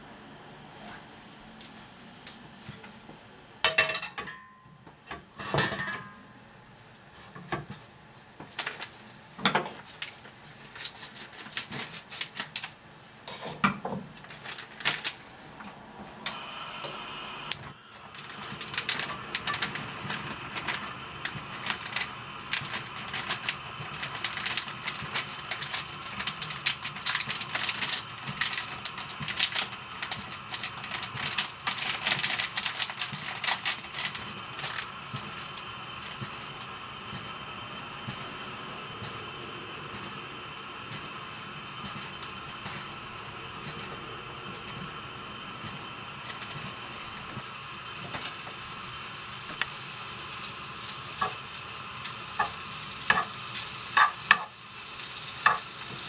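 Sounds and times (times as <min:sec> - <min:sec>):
frying pan clattering on grate: 0:03.7 - 0:04.5, 0:05.4 - 0:06.2, 0:54.0 - 0:54.6
gas burner hissing: 0:16.2 - 0:56.0
burner ignition ticks: 0:17.5 - 0:51.4.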